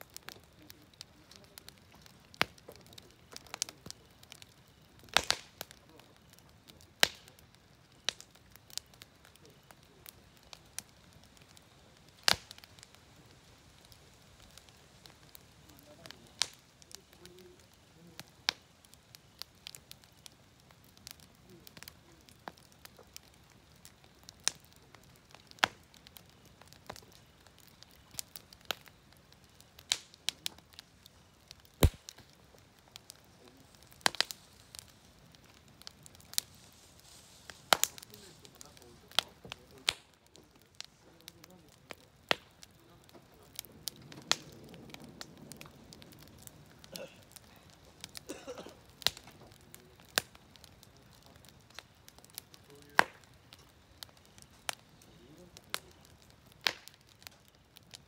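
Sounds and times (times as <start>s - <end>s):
faint hiss: 0.0s - 58.0s
wood fire crackling and popping: 0.0s - 58.0s.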